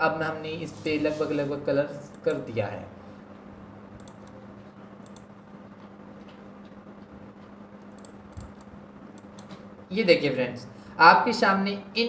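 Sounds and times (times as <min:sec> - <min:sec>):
steady low hum: 0:00.0 - 0:12.0
computer mouse clicks: 0:02.1 - 0:02.4, 0:04.0 - 0:04.4, 0:05.0 - 0:05.3, 0:07.8 - 0:09.6.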